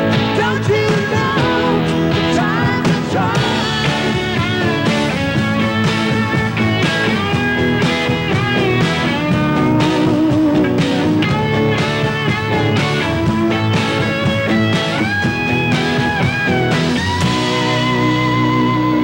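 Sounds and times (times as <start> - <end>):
electric guitar lead with bent notes: 0.0 - 19.0
rock band playing live: 0.0 - 19.0.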